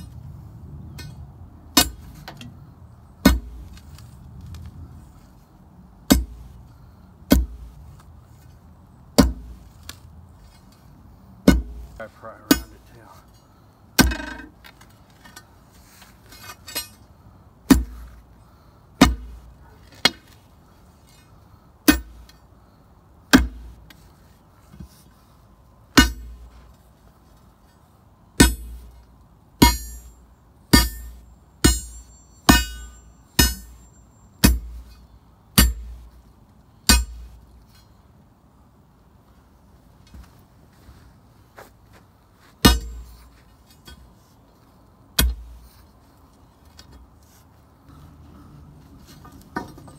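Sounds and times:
digging bar striking soil and stones: 0.9 - 2.6, 3.2 - 18.3, 19.0 - 22.5, 23.3 - 25.1, 25.9 - 27.8, 28.4 - 36.2, 36.8 - 38.0, 42.4 - 44.5, 45.1 - 48.0.

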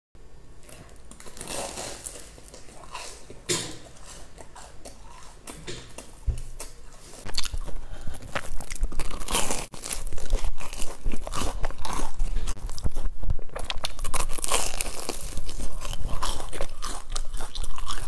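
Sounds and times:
crunching fried bun: 6.6 - 18.0.

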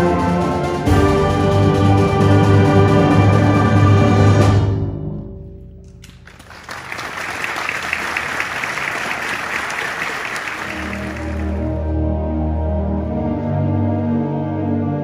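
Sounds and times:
audience applause: 6.0 - 11.9.

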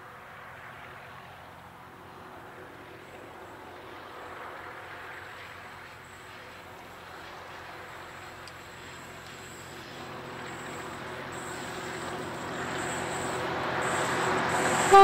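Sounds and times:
distant locomotive rumble: 0.0 - 15.0
outdoor hiss: 5.6 - 15.0.

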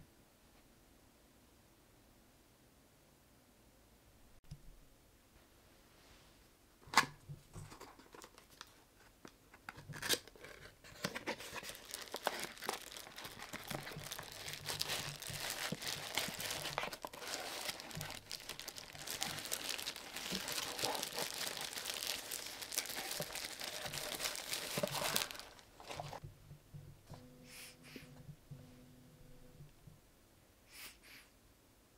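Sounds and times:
wrapping crinkling and tearing: 9.8 - 26.2.

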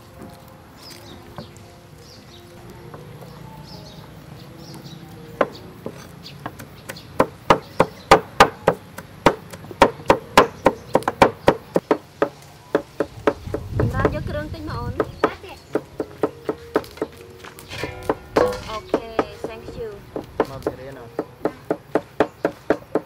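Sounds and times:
cleavers chopping on wooden boards: 5.3 - 14.3, 14.9 - 23.0.

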